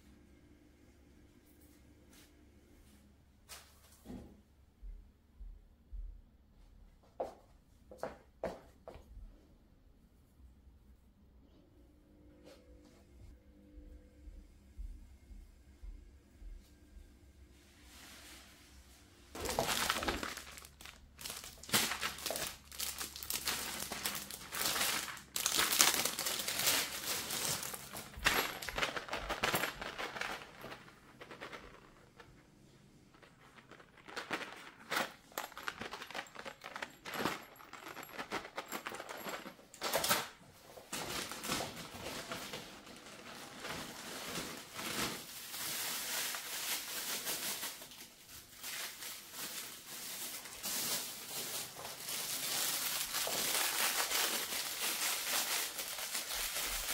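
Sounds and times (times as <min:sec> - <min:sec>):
packaging crinkling and rustling: 0:19.3 - 0:56.9.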